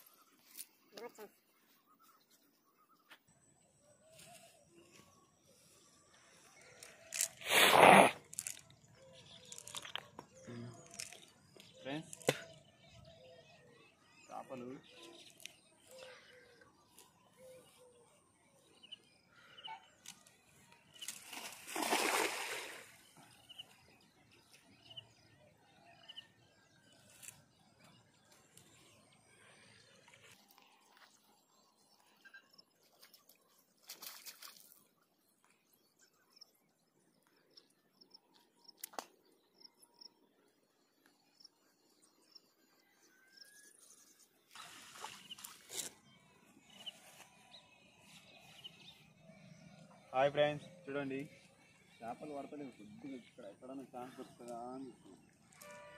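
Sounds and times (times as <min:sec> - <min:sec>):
net splashing into water: 0:21.0 - 0:23.0, 0:44.5 - 0:45.7
short water splashes: 0:21.0 - 0:23.1, 0:33.8 - 0:34.8, 0:44.5 - 0:45.7.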